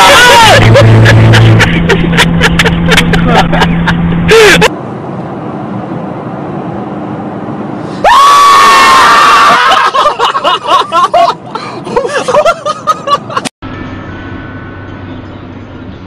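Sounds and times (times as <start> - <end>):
loud scream: 0.0 - 0.8, 8.0 - 10.1
men laughing: 0.0 - 4.7, 9.2 - 13.5
car cabin road noise: 0.0 - 8.1.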